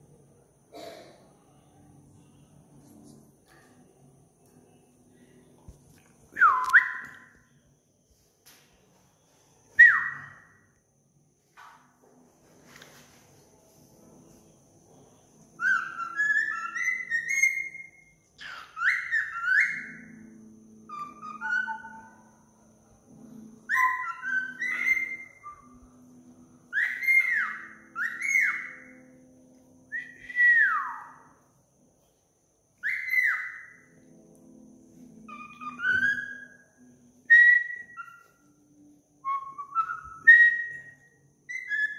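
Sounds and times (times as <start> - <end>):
cockatiel whistling: 9.8 - 10.5, 15.6 - 20.3, 20.9 - 22.3, 23.7 - 25.8, 26.7 - 29.0, 32.8 - 33.9, 35.3 - 36.6, 37.3 - 38.5, 39.3 - 41.9.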